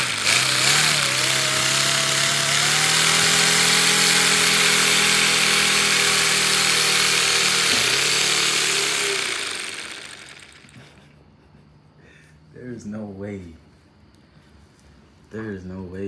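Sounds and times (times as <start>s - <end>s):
steady buzzing hum: 0.0s - 11.6s.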